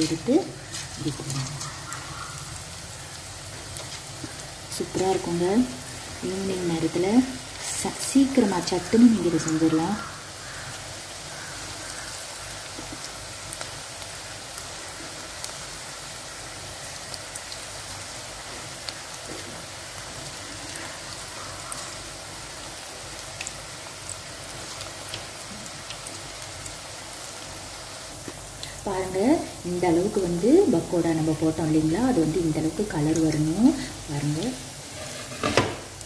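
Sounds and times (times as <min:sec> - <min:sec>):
food sizzling in hot oil: 0:00.0 - 0:36.0
oil pops and crackles: 0:28.2 - 0:28.8.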